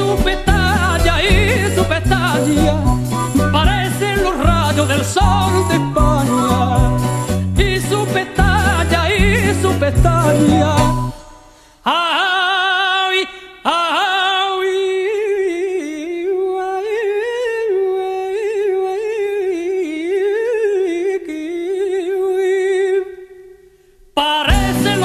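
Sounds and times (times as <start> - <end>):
man singing unaccompanied: 0.0 - 25.0.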